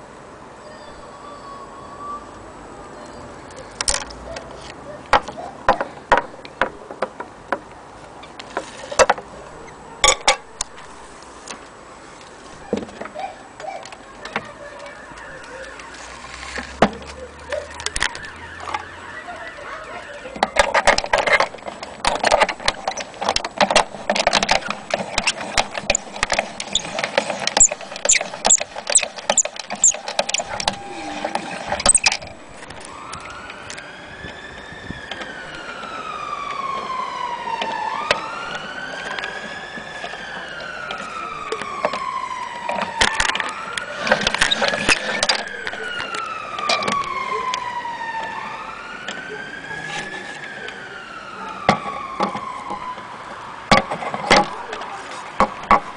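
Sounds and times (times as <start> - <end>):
siren rising: 17.0 - 21.6, 24.2 - 53.8
metal parts clicking and rattling: 20.5 - 32.9
short squeaks: 24.3 - 32.8.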